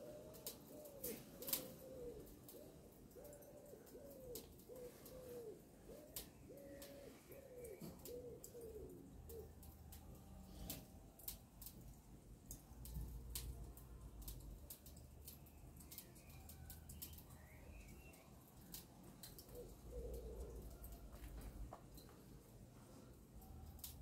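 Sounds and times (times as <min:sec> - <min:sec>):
pigeon cooing: 0:00.0 - 0:10.8, 0:15.9 - 0:21.6.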